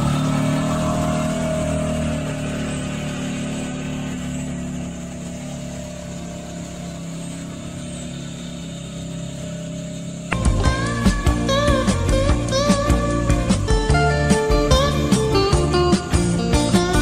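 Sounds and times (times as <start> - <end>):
utility vehicle engine running: 0.0 - 17.0.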